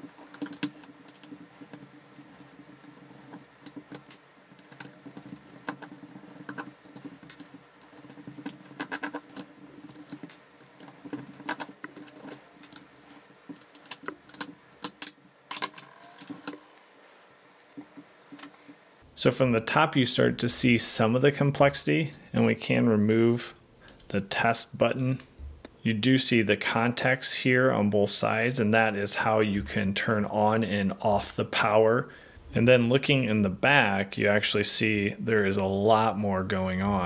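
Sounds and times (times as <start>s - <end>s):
screwdriver clicks and scrapes on plastic: 0.0s - 16.7s.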